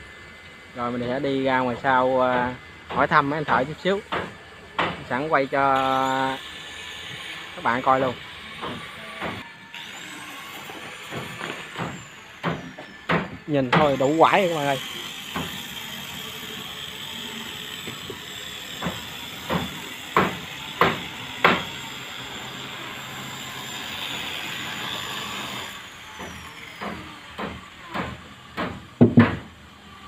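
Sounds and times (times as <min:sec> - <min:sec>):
hammer blows on wood: 0:10.7 - 0:14.5, 0:18.8 - 0:21.8, 0:26.1 - 0:29.5.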